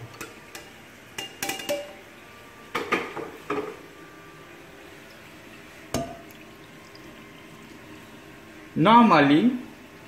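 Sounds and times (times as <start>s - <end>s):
metal pots and spoon clinking: 0.1s - 2.0s, 5.9s - 6.4s.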